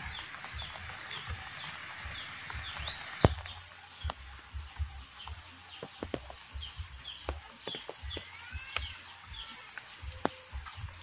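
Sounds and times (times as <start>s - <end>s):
chicken cheeping: 0.0s - 3.4s
sharp drip ticks: 0.0s - 11.0s
steady rain hiss: 0.0s - 11.0s.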